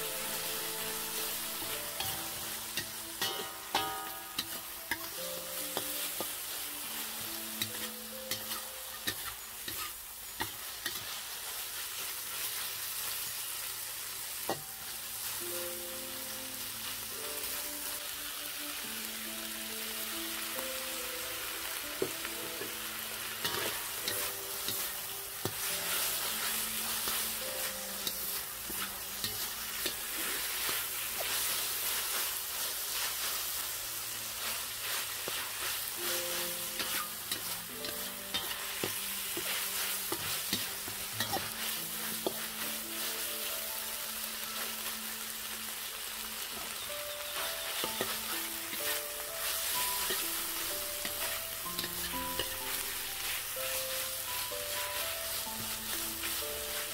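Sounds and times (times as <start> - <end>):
metal spatula scraping wok: 0.0 - 13.3, 22.5 - 33.6, 34.2 - 43.4, 47.1 - 56.9
food sizzling in hot oil: 0.0 - 56.9.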